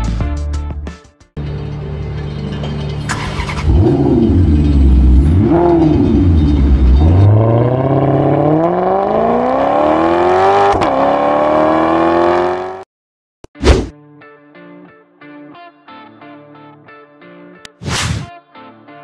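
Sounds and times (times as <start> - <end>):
race car engine accelerating: 2.6 - 12.8.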